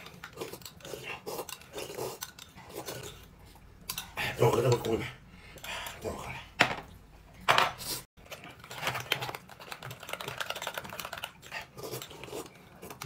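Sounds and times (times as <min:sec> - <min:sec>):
chewing crackles: 0:00.0 - 0:04.1.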